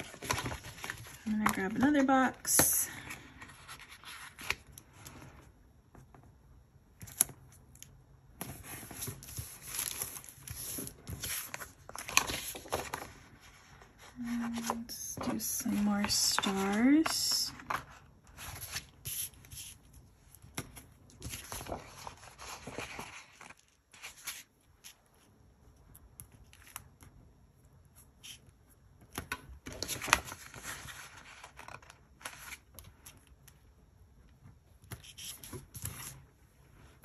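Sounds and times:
paper rustling and crinkling: 0.0s - 2.0s, 3.0s - 5.4s, 8.4s - 25.3s, 29.6s - 33.4s.

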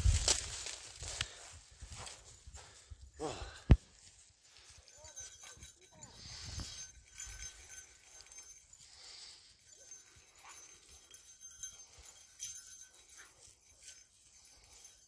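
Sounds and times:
footsteps rustling in dry grass: 0.0s - 10.7s
light jingling: 0.0s - 15.0s.

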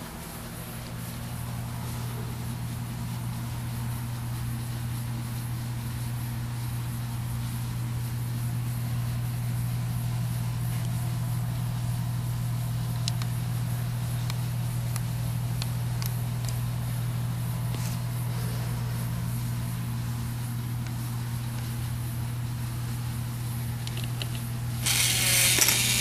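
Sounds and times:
low motor hum: 0.0s - 26.0s
plastic balls clicking on track: 24.8s - 26.0s.

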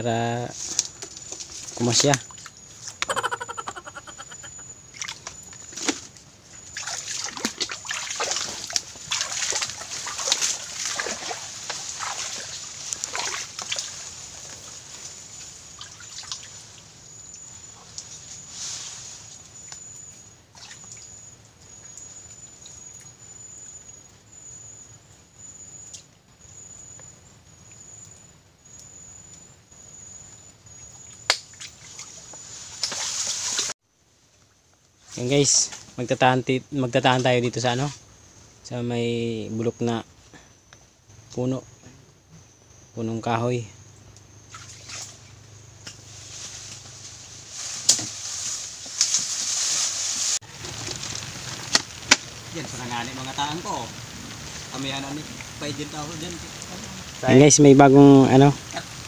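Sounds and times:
water splashing and sloshing: 0.6s - 3.0s, 3.7s - 19.8s, 20.5s - 23.0s, 30.7s - 33.8s, 44.4s - 52.9s
water trickling drips: 6.6s - 18.2s, 19.6s - 24.1s, 25.8s - 33.6s, 50.7s - 59.0s.

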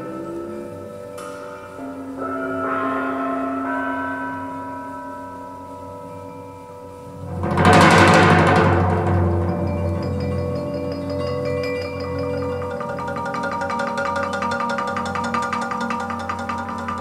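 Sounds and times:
loud crash: 7.2s - 11.2s
percussion music over loudspeakers: 7.2s - 17.0s.

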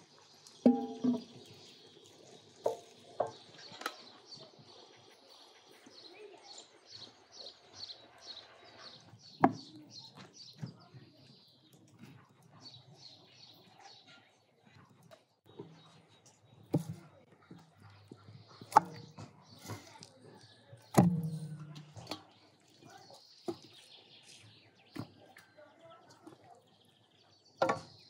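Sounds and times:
cookware knocking: 0.7s - 1.3s
metal pot clanging on table: 0.7s - 1.4s
small bird chirping: 17.8s - 28.0s.

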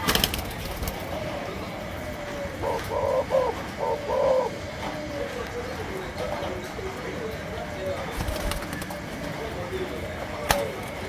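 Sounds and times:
dove cooing: 0.0s - 6.6s
faint coos of other doves: 0.9s - 6.6s.

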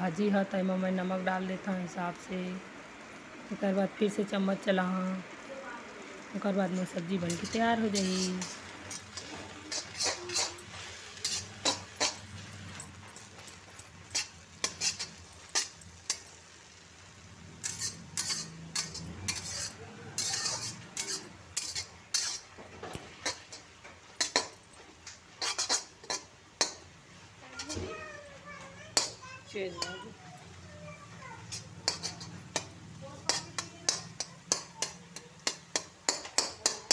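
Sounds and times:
metal spatula scraping a pan: 6.7s - 28.1s, 28.9s - 36.9s.

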